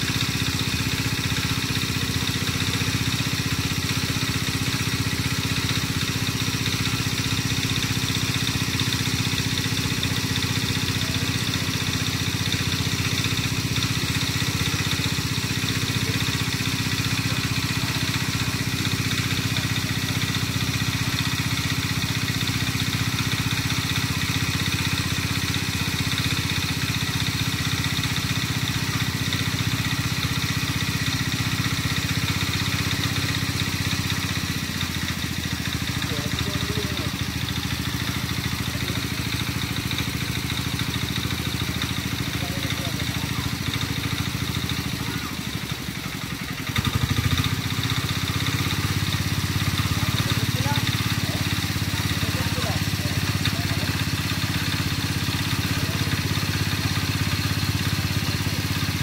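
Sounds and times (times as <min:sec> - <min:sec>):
small engine running steadily: 0:00.0 - 0:59.0.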